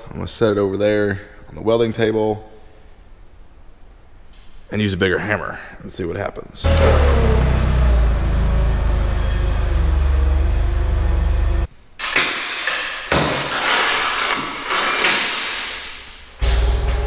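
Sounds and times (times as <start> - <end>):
forklift engine running: 6.6 - 11.7
chain clanking on metal: 13.4 - 15.9.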